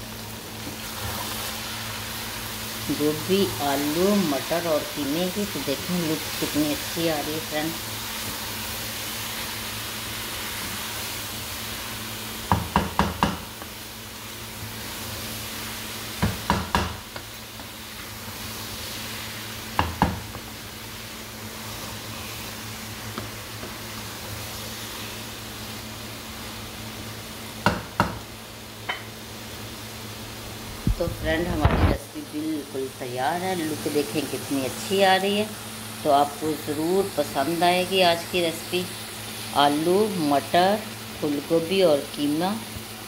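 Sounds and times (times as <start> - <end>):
soft frying sizzle: 0.0 - 43.0
wooden spatula stirring in a wok: 7.7 - 25.9
spatula knocking on pan: 12.5 - 13.7, 16.2 - 17.3, 19.8 - 20.5, 27.6 - 28.3.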